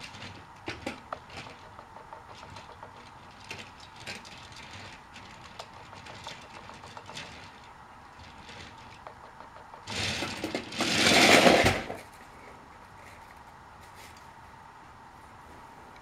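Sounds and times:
toy train motor buzzing: 0.0s - 11.9s.

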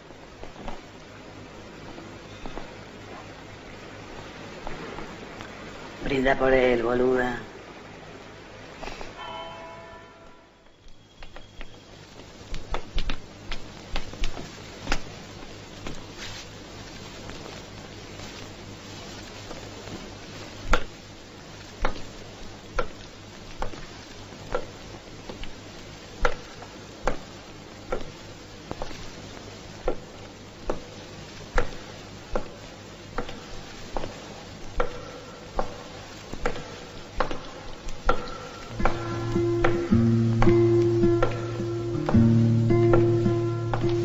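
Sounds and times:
footsteps on hard floor: 38.7s - 44.0s
soft sustained music notes: 38.7s - 44.0s.

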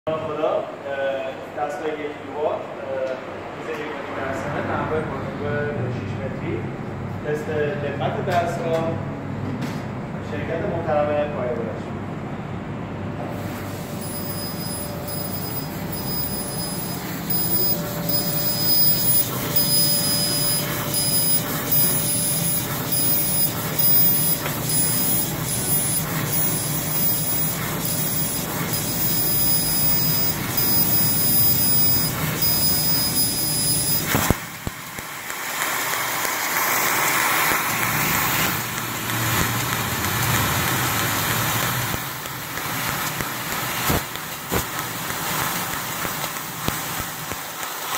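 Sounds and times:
high machine whine: 13.2s - 47.6s
hiss of assist gas: 13.3s - 47.9s
laser cutter pulses: 13.4s - 47.9s.

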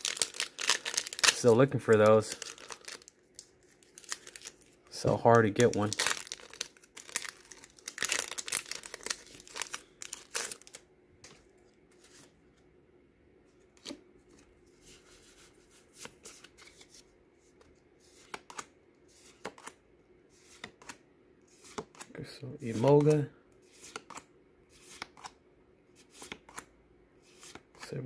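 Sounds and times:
cards rustling and clicking: 0.0s - 4.7s, 5.3s - 12.3s, 15.9s - 19.8s, 20.4s - 22.1s, 22.7s - 25.4s, 26.0s - 27.9s
foil wrapper crinkling and tearing: 0.0s - 4.7s, 5.5s - 10.8s.

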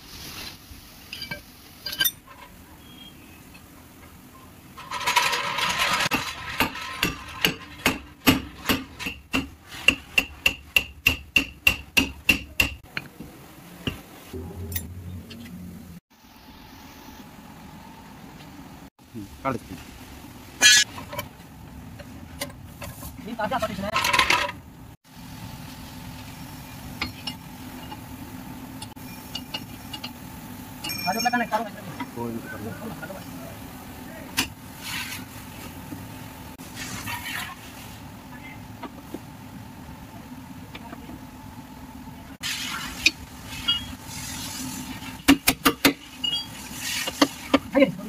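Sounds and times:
scraping rattle: 4.8s - 9.0s.

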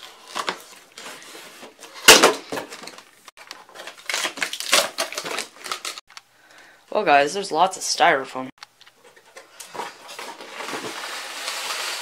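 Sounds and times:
cardboard crunching and scraping: 0.0s - 3.0s, 9.1s - 12.0s.

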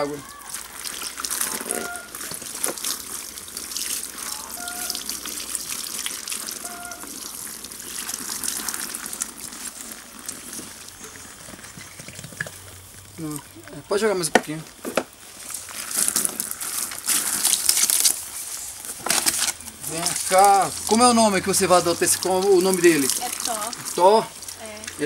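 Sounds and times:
water pouring and splashing: 0.0s - 25.0s
brief beep-like tones: 4.5s - 5.0s
hand rubbing wet fur: 15.3s - 18.9s.

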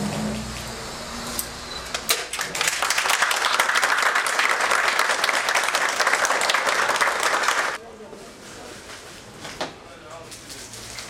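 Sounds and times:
people applauding: 2.2s - 7.8s.

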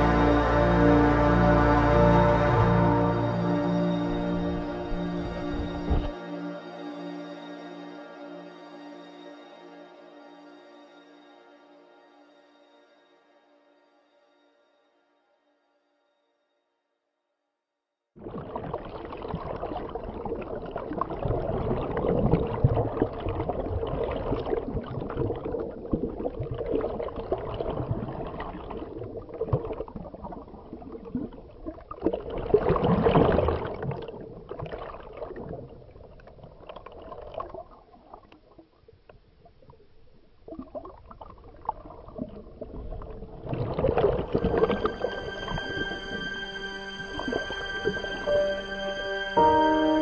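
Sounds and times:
water rushing underwater: 0.0s - 6.2s, 18.2s - 38.7s, 39.5s - 50.0s.

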